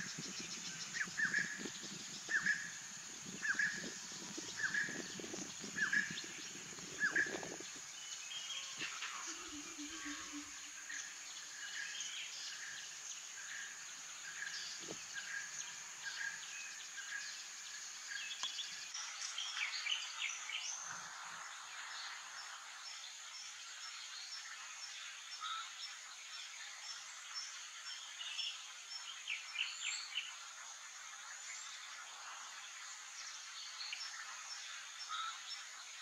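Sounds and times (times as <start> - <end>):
insect drone: 0.0 - 36.0
animal calls: 8.7 - 10.6.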